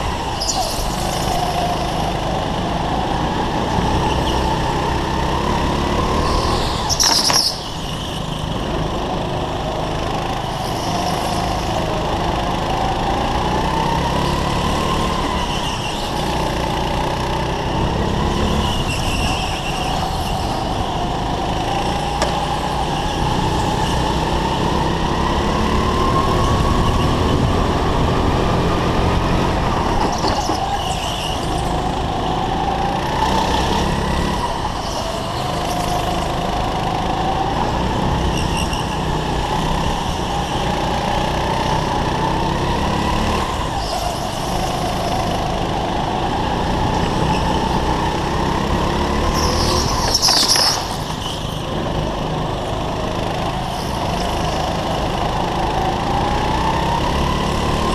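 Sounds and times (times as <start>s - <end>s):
kart engine revving: 0.0s - 57.9s
loud hissing scrape: 49.4s - 51.4s.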